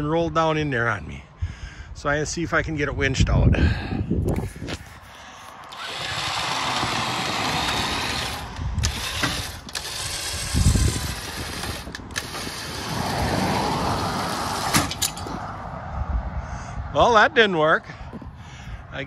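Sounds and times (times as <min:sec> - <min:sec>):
winch whirring: 0:05.6 - 0:15.4.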